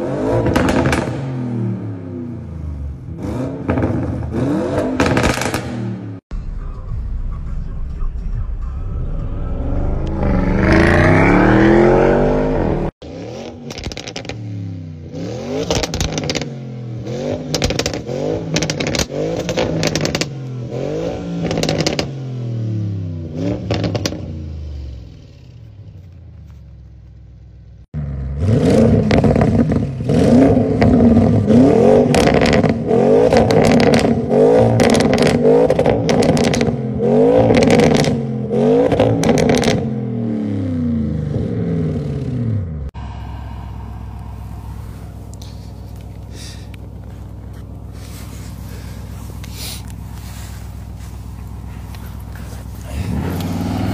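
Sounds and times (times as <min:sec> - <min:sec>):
car engine revving: 0:00.0 - 0:26.4, 0:28.0 - 0:53.9
exhaust crackles and pops: 0:00.4 - 0:01.3, 0:03.6 - 0:08.8, 0:13.4 - 0:14.5, 0:15.6 - 0:16.6, 0:17.3 - 0:20.6, 0:21.4 - 0:22.2, 0:23.4 - 0:24.3, 0:28.8 - 0:36.8, 0:37.4 - 0:38.2, 0:38.8 - 0:39.9, 0:43.0 - 0:53.9
car accelerating past: 0:08.8 - 0:24.4, 0:41.8 - 0:53.9.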